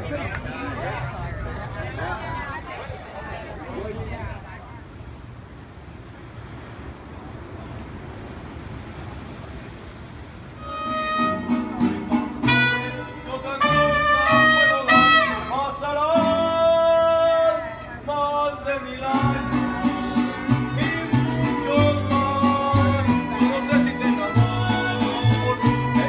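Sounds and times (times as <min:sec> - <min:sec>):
mariachi band playing: 0:10.6 - 0:26.0.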